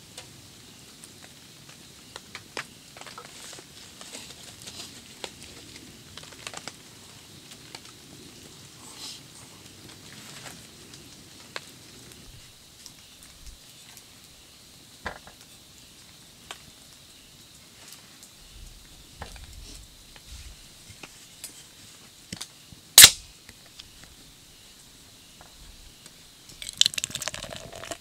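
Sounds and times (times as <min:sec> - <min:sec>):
sharp click: 0:23.0 - 0:23.2
drink poured into cup clinking: 0:26.6 - 0:28.0.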